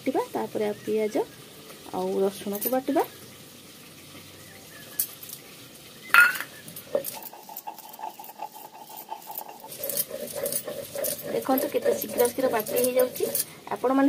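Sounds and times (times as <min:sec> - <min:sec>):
stone roller scraping on stone: 0:06.2 - 0:14.0.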